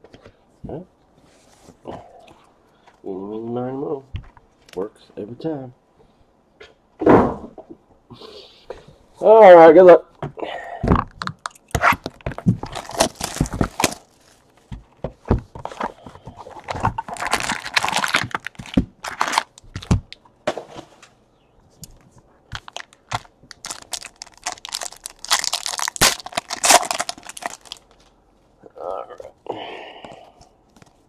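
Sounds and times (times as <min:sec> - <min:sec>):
plastic wrapping crinkling: 0:11.2 - 0:14.6, 0:15.8 - 0:20.2, 0:22.5 - 0:28.1
cardboard boxes tearing: 0:11.8 - 0:14.1, 0:16.6 - 0:19.9, 0:23.6 - 0:27.8.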